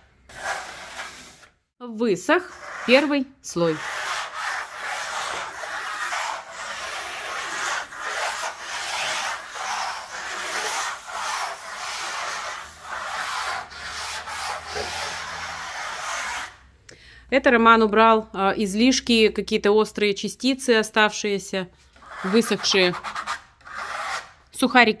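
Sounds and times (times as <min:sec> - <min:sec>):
trowel scraping plaster: 0:00.2 - 0:01.6, 0:02.4 - 0:16.6, 0:21.8 - 0:24.4.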